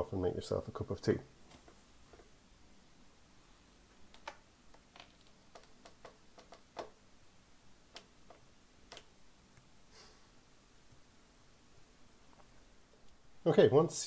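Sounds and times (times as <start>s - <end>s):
faint irregular clicks: 3.9s - 7.0s, 7.9s - 9.7s.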